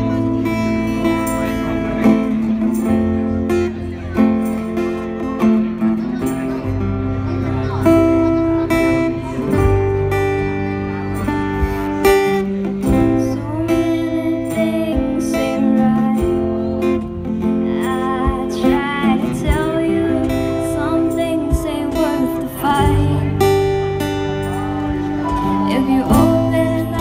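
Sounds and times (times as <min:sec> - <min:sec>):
keyboard chords: 0:00.0 - 0:27.0
strummed acoustic guitars: 0:00.0 - 0:27.0
woman singing into a microphone: 0:12.8 - 0:24.2, 0:25.0 - 0:27.0.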